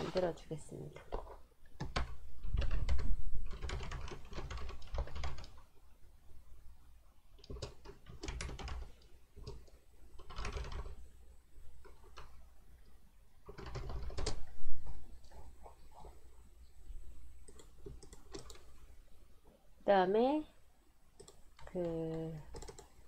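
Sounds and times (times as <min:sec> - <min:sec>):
typing on keyboard: 0:01.0 - 0:05.7, 0:07.4 - 0:11.0, 0:13.5 - 0:14.5, 0:17.4 - 0:18.7, 0:21.2 - 0:23.0.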